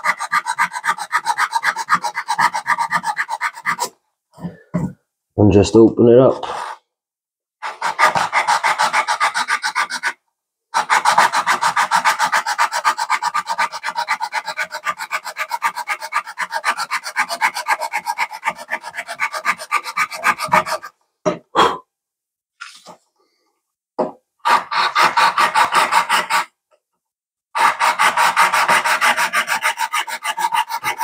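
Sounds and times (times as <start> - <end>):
sandpaper rasping: 0.0 - 3.9, 7.6 - 10.2, 10.8 - 20.9, 24.5 - 26.5, 27.6 - 31.0.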